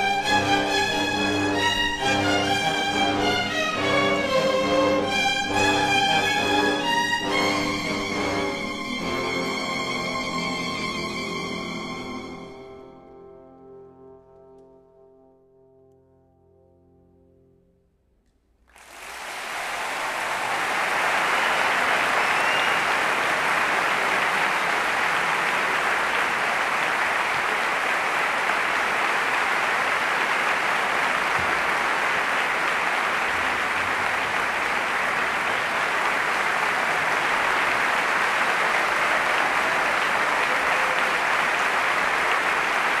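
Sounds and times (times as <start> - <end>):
audience applauding: 0.0 - 12.2, 18.7 - 43.0.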